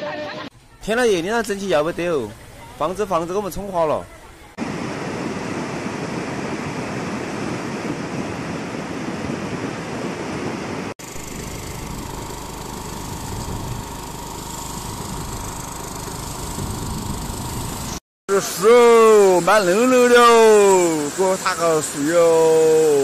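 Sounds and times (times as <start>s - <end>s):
floodwater rushing: 18.4s - 23.0s
flood surge pouring down ditch: 18.7s - 23.0s.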